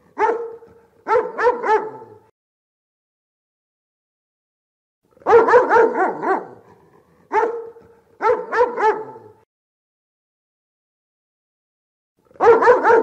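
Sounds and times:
dog barking: 0.0 - 2.3, 5.2 - 9.5, 12.4 - 13.0.

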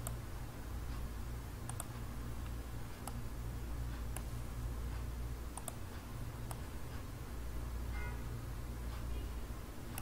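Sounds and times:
computer mouse clicking: 0.0 - 0.2, 1.6 - 3.2, 4.0 - 4.3, 5.5 - 7.0
steady low hum: 0.0 - 10.0.

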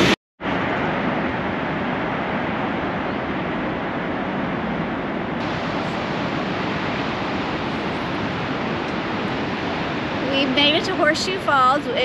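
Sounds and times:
waterfall rushing: 5.4 - 12.0.

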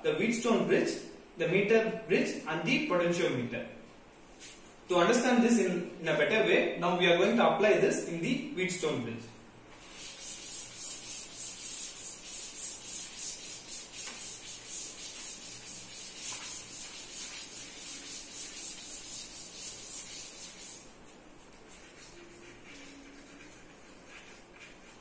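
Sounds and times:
cloth rubbing on chalk blackboard: 9.7 - 21.0, 21.7 - 25.0.

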